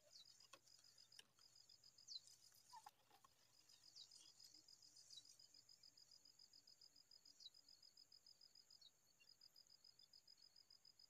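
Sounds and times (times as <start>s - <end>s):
small bird calling: 0.0s - 5.4s
cricket-like insect trill: 0.0s - 11.0s.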